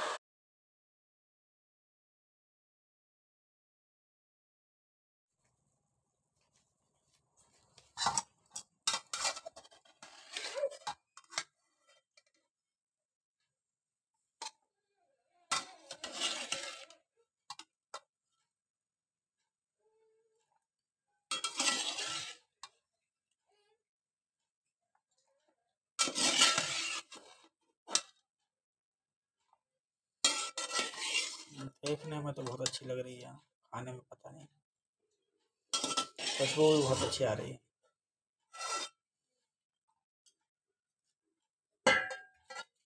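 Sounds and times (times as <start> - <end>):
steel spoon scraping steel bowl: 8.9 - 11.9, 15.5 - 17.0, 21.3 - 22.5, 26.0 - 28.0, 30.2 - 32.8, 35.8 - 37.3, 38.5 - 38.9.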